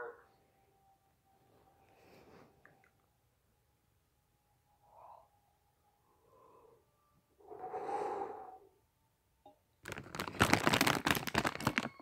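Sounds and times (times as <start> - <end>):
person breathing into cupped hands: 7.5 - 8.7
loud crackling noise: 9.8 - 12.0.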